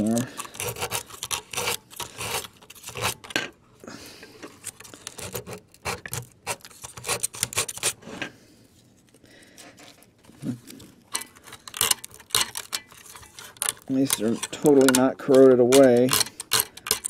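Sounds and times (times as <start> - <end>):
sandpaper scratching metal: 0.0 - 3.2, 5.0 - 8.0, 11.8 - 17.0.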